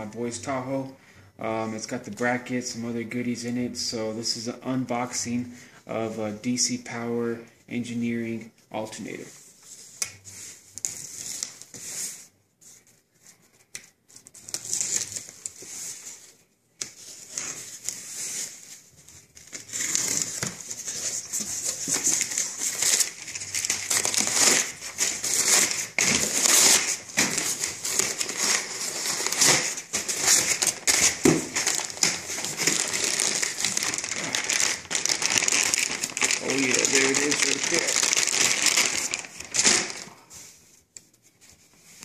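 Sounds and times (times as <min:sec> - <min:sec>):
packing paper crinkling: 0:17.0 - 0:40.6.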